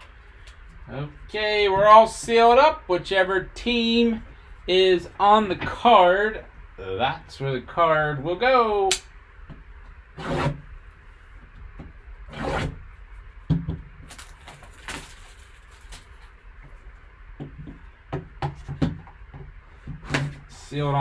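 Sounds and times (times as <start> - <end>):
plastic wrap crinkling: 14.0 - 16.4.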